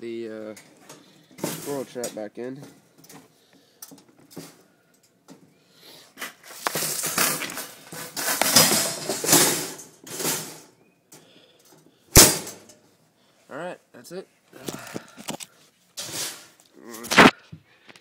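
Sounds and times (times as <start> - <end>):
wire mesh rattling and scraping: 0.6 - 3.2, 6.2 - 10.7, 16.0 - 16.6
sharp clack of trap: 12.2 - 12.8.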